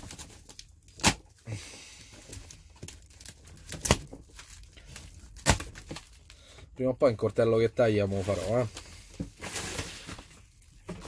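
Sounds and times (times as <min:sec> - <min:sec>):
knife cutting packing tape: 0:00.0 - 0:01.2
plastic ripping: 0:00.0 - 0:01.4, 0:02.3 - 0:06.4
plastic wrapping crinkling: 0:02.0 - 0:06.4.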